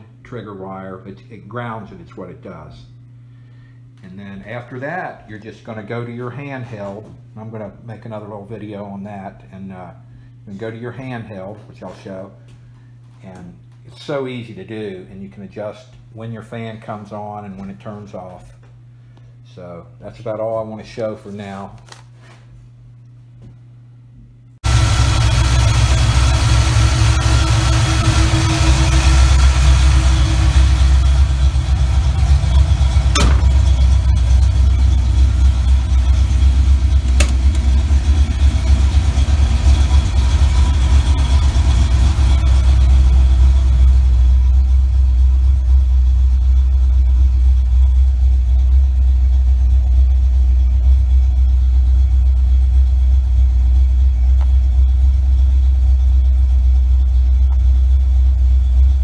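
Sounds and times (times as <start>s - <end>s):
car engine idling: 24.6s - 59.0s
sharp clicks: 37.0s - 37.7s.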